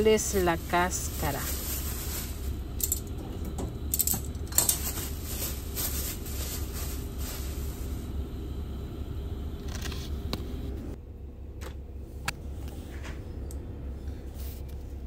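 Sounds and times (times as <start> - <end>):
steady low hum: 0.0 - 15.0
metal utensils clicking: 2.8 - 3.1, 3.9 - 4.8.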